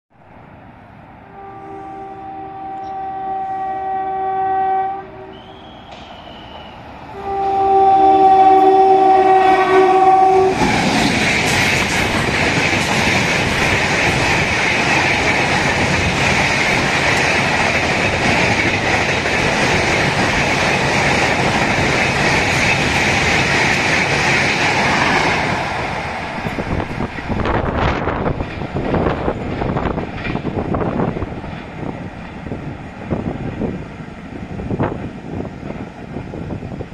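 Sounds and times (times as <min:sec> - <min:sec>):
train rushing past: 0:00.2 - 0:36.9
train horn blasts: 0:01.3 - 0:10.6
wheels clacking over rail joints: 0:10.5 - 0:33.7.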